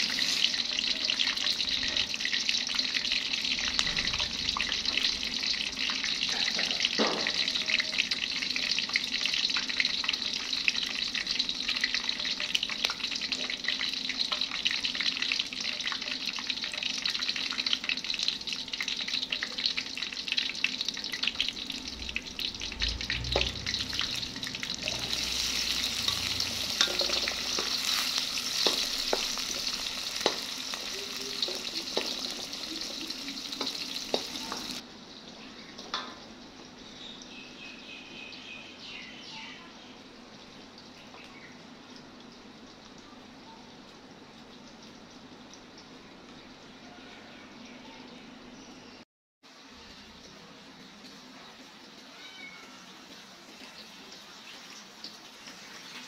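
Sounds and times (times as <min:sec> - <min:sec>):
oil sizzling and popping: 0:00.0 - 0:36.8, 0:49.5 - 0:56.0.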